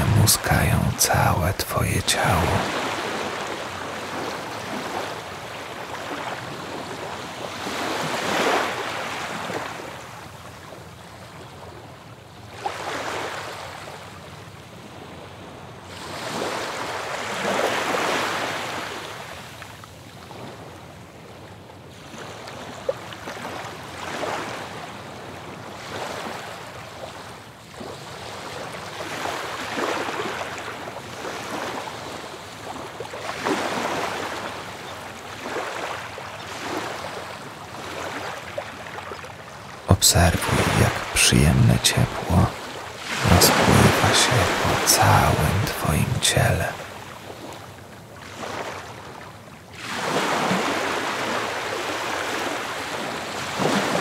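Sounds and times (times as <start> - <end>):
ocean waves breaking: 0.0 - 10.0, 27.8 - 41.1, 41.8 - 49.2, 49.8 - 54.0.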